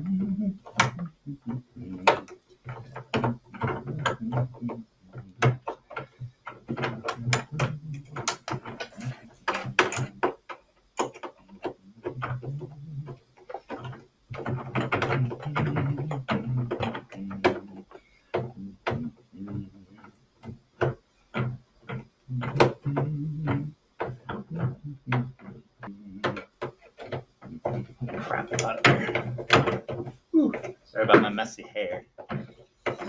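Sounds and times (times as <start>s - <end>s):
screwdriver clicking and knocking: 5.4s - 17.6s, 26.2s - 31.3s.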